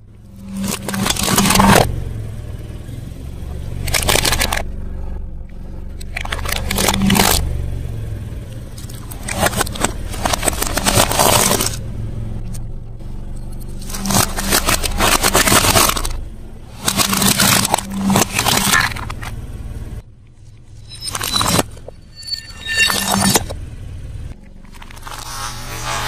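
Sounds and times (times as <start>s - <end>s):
car engine low hum: 0.0s - 26.0s
car tyre crushing brittle objects: 0.4s - 1.9s, 3.7s - 4.8s, 5.5s - 7.5s, 8.5s - 11.8s, 12.4s - 19.7s, 24.4s - 26.0s.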